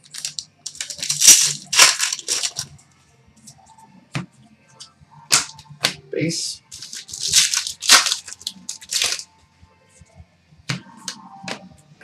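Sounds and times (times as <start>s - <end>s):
foil wrapper crinkling: 0.0s - 2.7s, 6.7s - 9.2s
cards clicking set down: 0.1s - 2.7s, 5.3s - 6.0s, 6.7s - 9.2s.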